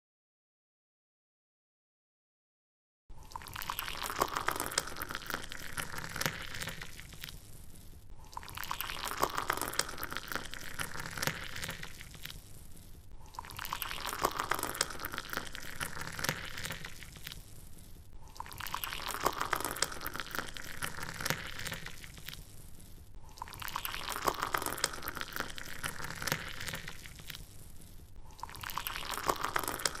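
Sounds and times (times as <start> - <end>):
water gushing: 3.2 - 7.4, 8.2 - 12.4, 13.2 - 17.4, 18.3 - 22.5, 23.3 - 27.4, 28.4 - 30.0.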